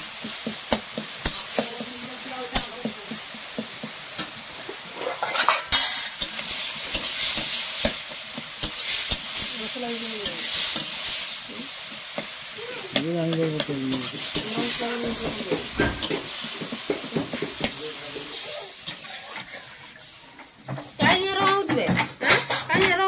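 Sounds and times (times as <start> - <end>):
vegetables sizzling in hot oil: 0.0 - 23.0
spoon scraping a pan: 3.6 - 11.2, 12.9 - 23.0.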